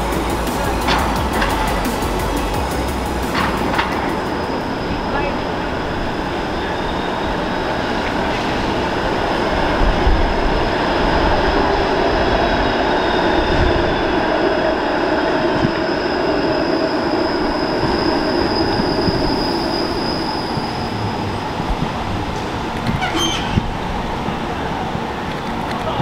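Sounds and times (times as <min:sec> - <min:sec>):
streetcar wheels rumbling: 0:00.0 - 0:26.0
high-pitched wheel squeal: 0:03.5 - 0:08.8, 0:15.4 - 0:21.5, 0:23.0 - 0:23.7.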